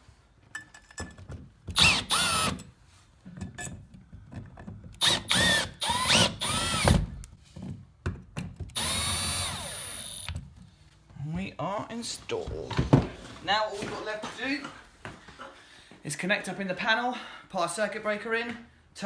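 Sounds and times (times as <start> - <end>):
drill driving screws: 1.7 - 2.7, 5.0 - 7.1, 8.7 - 10.4.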